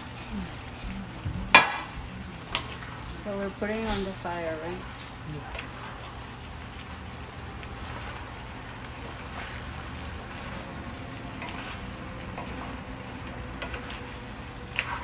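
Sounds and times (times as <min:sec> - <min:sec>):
food sizzling in skillet: 0:00.0 - 0:15.0
low steady hum: 0:00.0 - 0:15.0
spatula scraping pan: 0:07.7 - 0:15.0.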